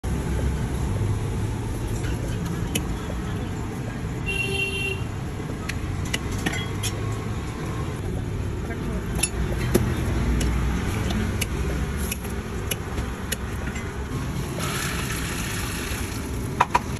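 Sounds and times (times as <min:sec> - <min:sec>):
traffic rumble: 0:00.0 - 0:16.9
vehicle horn toot: 0:04.3 - 0:05.1.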